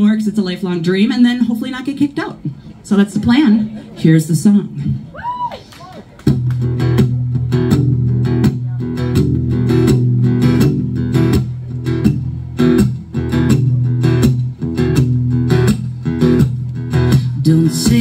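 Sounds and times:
acoustic guitar strumming: 6.3s - 18.0s.

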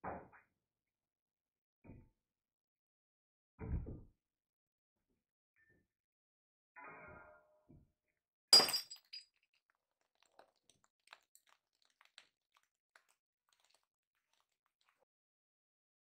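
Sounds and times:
glass bottle bursting: 8.6s - 9.2s.

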